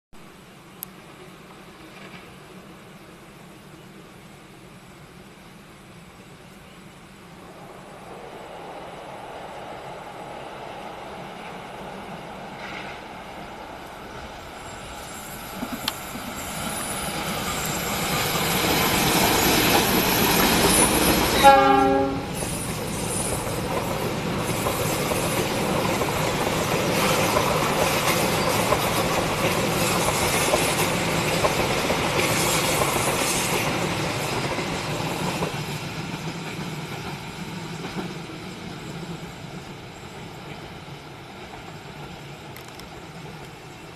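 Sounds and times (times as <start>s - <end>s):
passing train running noise: 0.2s - 43.9s
rail clatter: 13.8s - 38.3s
high wheel squeal: 14.4s - 21.6s
train horn blast: 21.4s - 22.4s.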